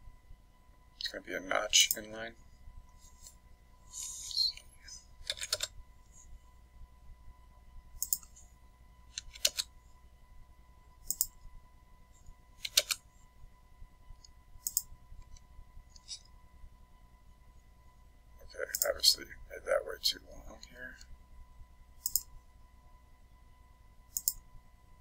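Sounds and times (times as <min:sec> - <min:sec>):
faint electrical hum and whine: 0:00.0 - 0:25.0
computer keyboard typing: 0:05.2 - 0:05.7, 0:08.0 - 0:08.4, 0:09.1 - 0:09.7, 0:11.0 - 0:11.4, 0:12.6 - 0:13.0, 0:14.7 - 0:15.4, 0:22.0 - 0:22.3, 0:24.1 - 0:24.4.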